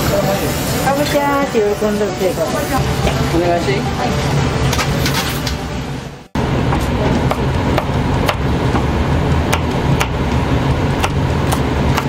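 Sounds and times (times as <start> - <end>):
background music: 0.8 - 6.4.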